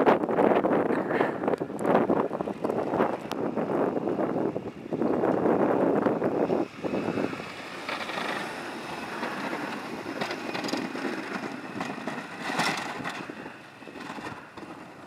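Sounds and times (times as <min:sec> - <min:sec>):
plow blade pushing snow: 0:00.6 - 0:15.0
vehicle engine running: 0:01.3 - 0:15.0
snow crunching: 0:06.6 - 0:13.6.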